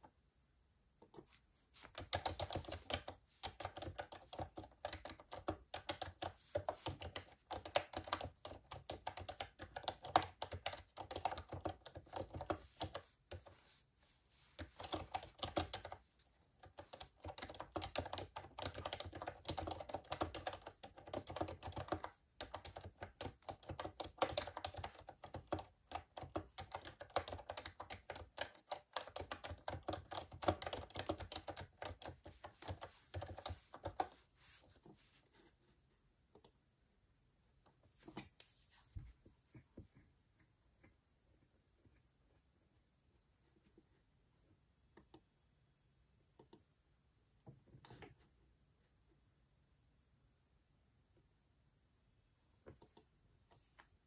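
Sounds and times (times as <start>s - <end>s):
computer keyboard typing: 1.0s - 13.6s, 14.5s - 34.3s.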